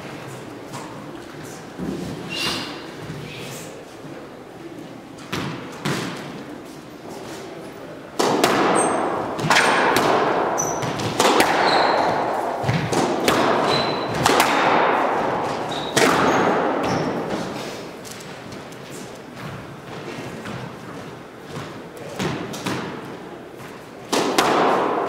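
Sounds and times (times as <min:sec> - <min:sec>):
squash ball cracking off walls: 0:08.2 - 0:17.5, 0:21.5 - 0:23.0, 0:24.1 - 0:25.0
shoes squeaking on wooden floor: 0:10.6 - 0:12.4.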